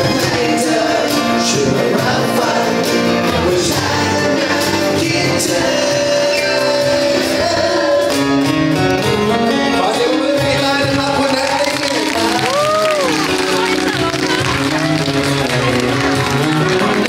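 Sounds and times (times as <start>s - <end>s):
man singing pop ballad: 0.0s - 13.0s
acoustic guitar: 0.0s - 17.0s
keyboard: 0.0s - 17.0s.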